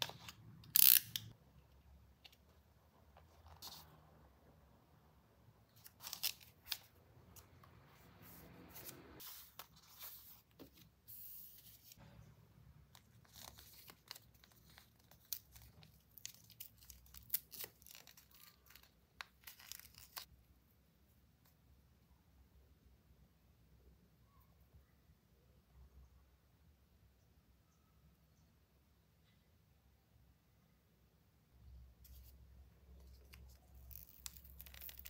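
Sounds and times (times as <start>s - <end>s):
sachet tearing open: 5.8s - 7.0s, 33.4s - 35.0s
packaging crinkling: 33.8s - 35.0s.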